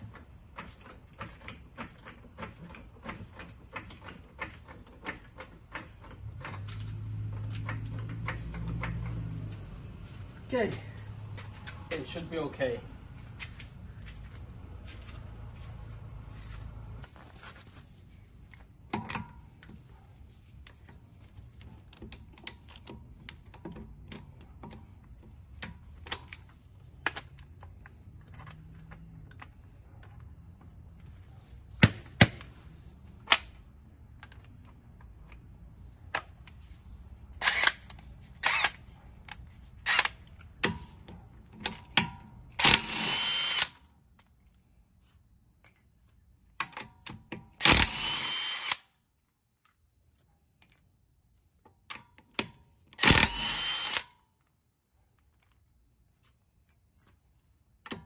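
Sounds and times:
impact wrench bursts: 42.5s - 43.8s, 47.6s - 48.9s, 53.0s - 54.2s.

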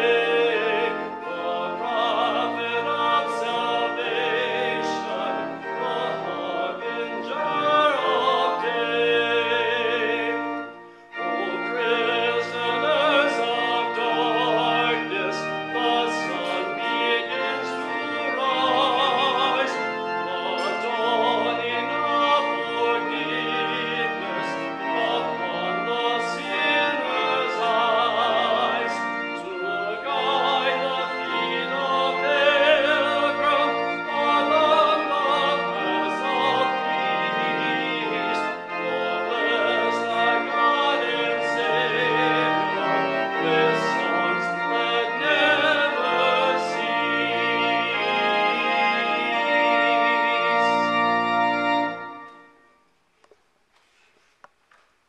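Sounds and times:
person singing a hymn: 0.0s - 52.6s
organ accompaniment: 0.0s - 53.4s.

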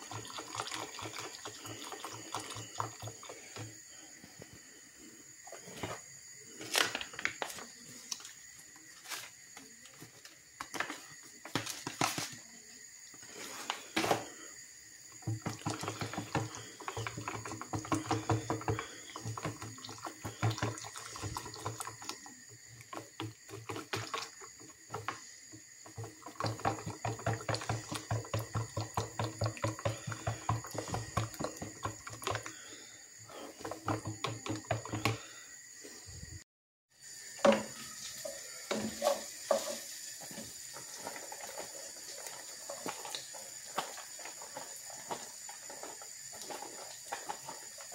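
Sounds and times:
utensil scraping plastic jug: 15.2s - 22.2s.

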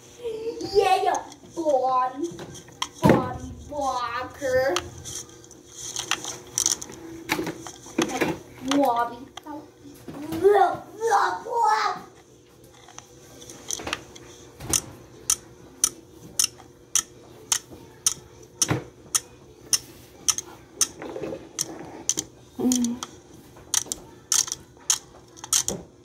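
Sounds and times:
toy alarm clock ticking: 14.7s - 18.2s, 19.1s - 21.0s, 23.7s - 25.8s.

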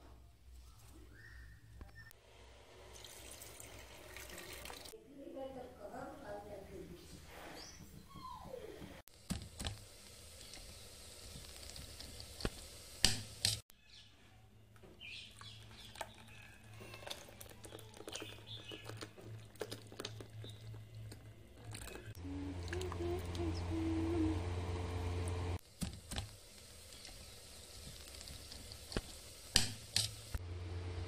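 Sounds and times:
low steady hum: 20.3s - 25.6s.

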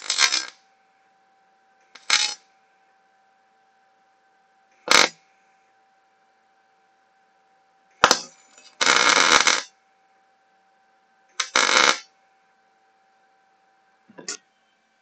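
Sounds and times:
arc welding crackling: 0.0s - 0.6s, 2.0s - 2.4s, 4.9s - 5.2s, 8.0s - 9.7s, 11.4s - 12.1s.

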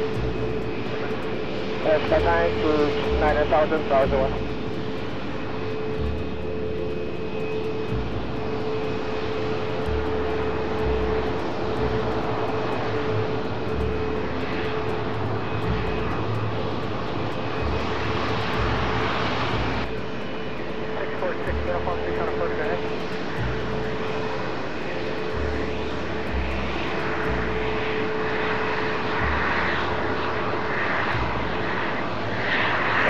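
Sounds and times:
jet engines running: 0.0s - 33.0s.

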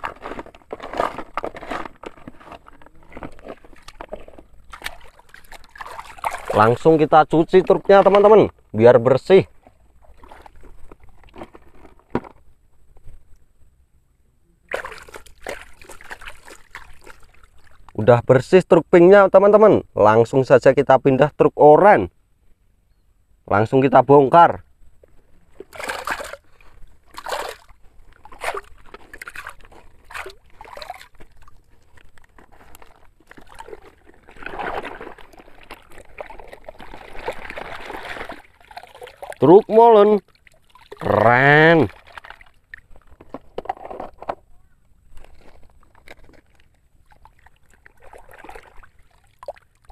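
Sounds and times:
water splashing and trickling: 0.0s - 8.6s, 9.2s - 11.8s, 14.7s - 18.0s, 25.5s - 44.0s, 45.2s - 49.9s.

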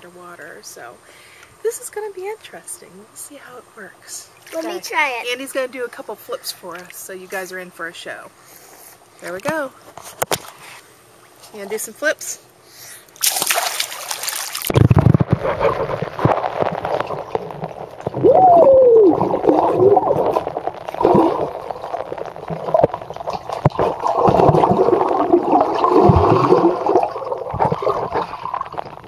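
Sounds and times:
splash into water: 13.2s - 28.8s
underwater gurgling and bubbling: 14.7s - 29.0s.

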